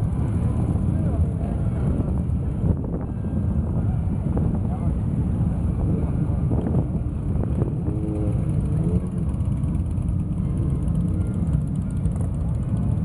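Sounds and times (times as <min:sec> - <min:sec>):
motorcycles riding past: 0:00.0 - 0:13.0.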